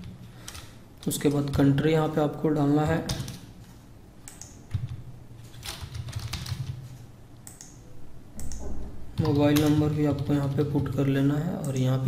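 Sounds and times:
typing on keyboard: 5.6s - 7.7s.

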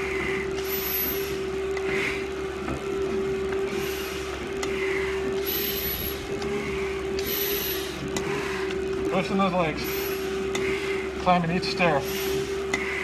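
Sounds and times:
breathing through respirator mask: 0.0s - 2.3s, 3.6s - 8.8s, 9.8s - 11.2s, 11.9s - 13.0s
stair-climbing machine motor whine: 0.0s - 13.0s.

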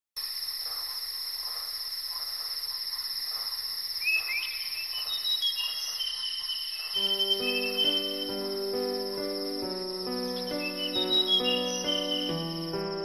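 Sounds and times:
crickets chirping: 0.2s - 13.0s.

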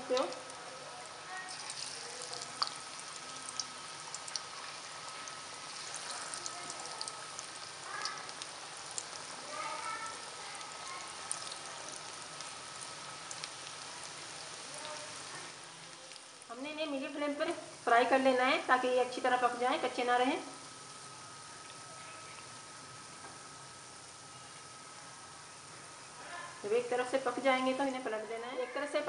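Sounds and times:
oil crackles and pops: 0.0s - 16.6s
food deep-frying in hot oil: 0.0s - 29.0s.

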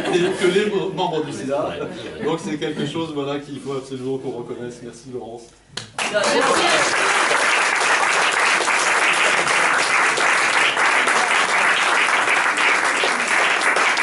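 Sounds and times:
audience applauding: 6.0s - 14.0s.

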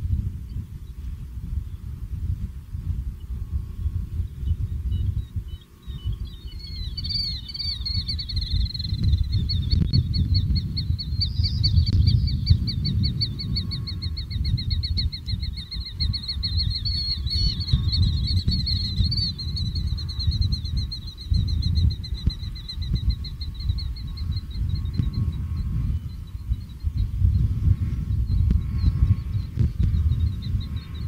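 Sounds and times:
wind rumble on microphone: 0.0s - 31.0s.

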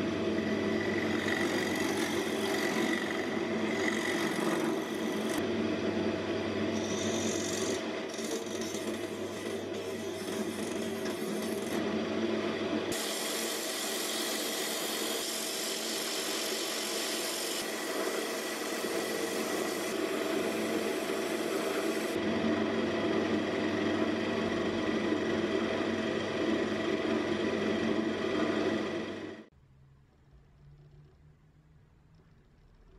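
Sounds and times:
chisel cutting wood: 0.0s - 5.4s, 6.7s - 11.8s, 12.9s - 22.2s
wood lathe running: 0.0s - 5.6s, 6.6s - 29.5s
turning tool scraping wood: 0.4s - 5.4s, 6.7s - 11.8s, 13.0s - 22.2s.

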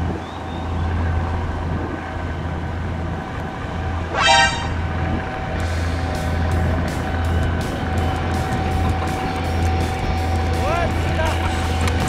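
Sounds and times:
steady low hum: 0.0s - 12.0s
bright toot rising in pitch: 4.1s - 5.2s.

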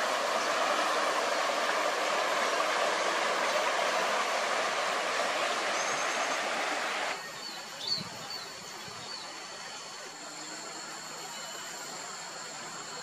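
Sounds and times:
steady rushing noise: 0.0s - 7.2s
faint high whine: 0.0s - 13.0s.

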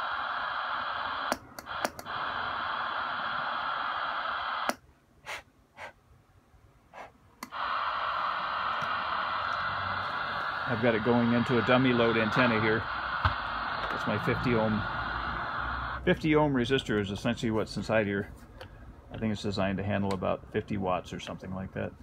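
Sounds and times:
radio clicks: 0.0s - 4.8s, 7.4s - 16.0s
radio static hiss: 0.0s - 6.0s, 6.9s - 18.4s.

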